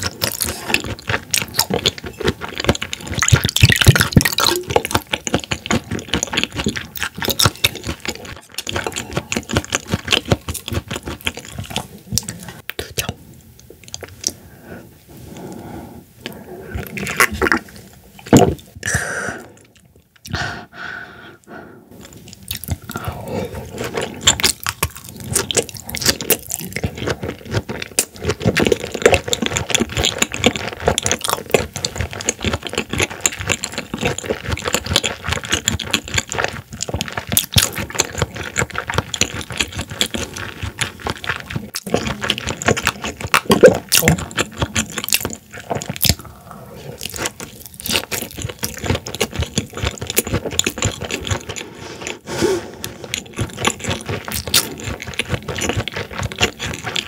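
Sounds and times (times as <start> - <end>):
mouth chewing clicks and smacks: 0.0 - 14.4, 22.0 - 57.0.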